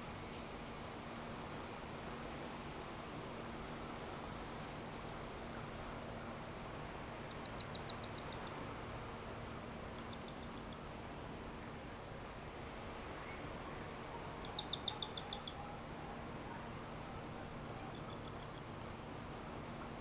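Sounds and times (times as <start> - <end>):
faint hiss: 0.0 - 20.0
high down-slurred chirps: 14.4 - 15.6.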